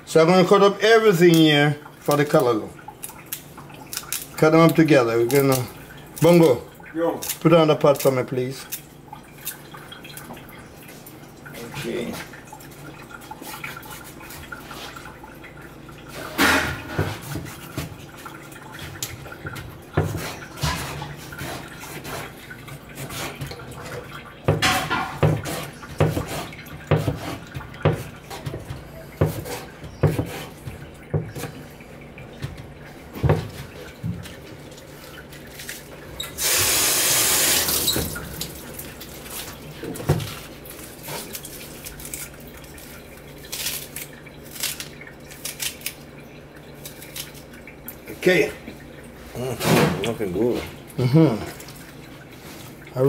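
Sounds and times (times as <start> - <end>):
knife chopping on cutting board: 24.4 - 31.5
tap running into sink: 36.2 - 38.7.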